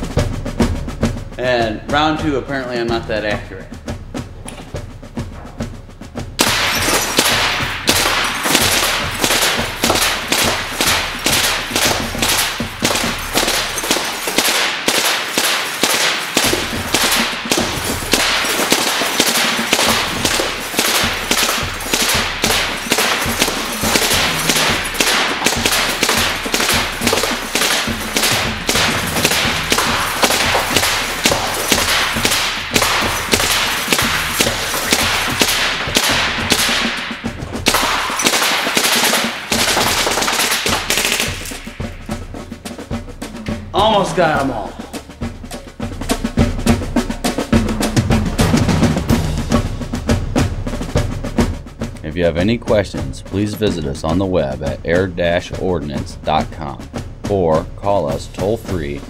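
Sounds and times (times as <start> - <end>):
light bulbs bursting: 6.4 - 41.8
pellet gun rapid fire: 6.4 - 59.0.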